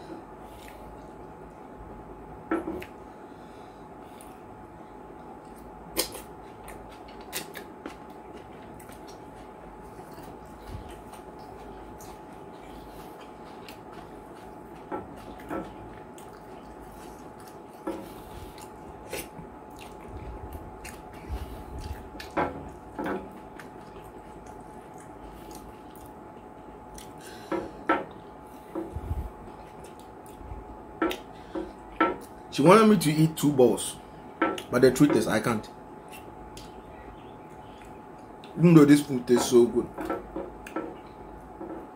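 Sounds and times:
faint steady hum: 0.0s - 41.9s
wet chewing smacks: 5.2s - 27.3s, 29.5s - 32.4s.

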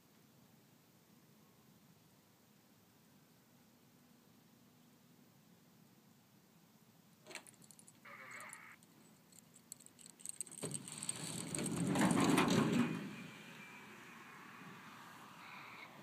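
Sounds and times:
glider wheel rattling rumble: 9.4s - 13.9s.

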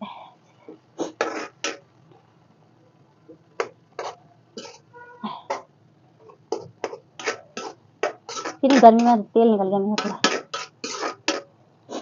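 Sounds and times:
metal spatula scraping iron pan: 1.1s - 1.8s, 3.6s - 4.9s, 6.4s - 9.2s, 10.0s - 11.5s.

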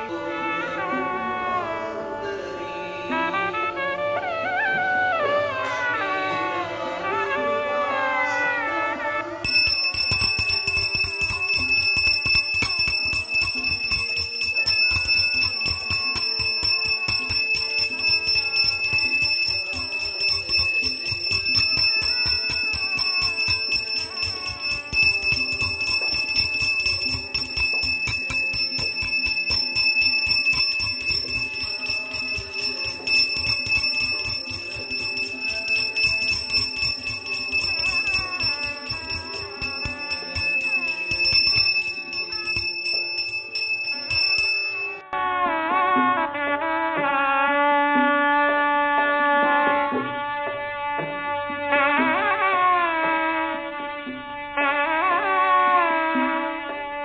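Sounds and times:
brass hand bell ringing rapidly: 9.4s - 45.0s.

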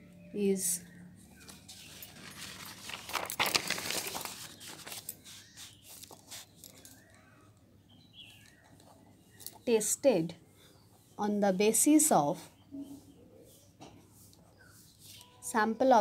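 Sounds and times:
paper rustling and scraping: 1.4s - 7.1s.

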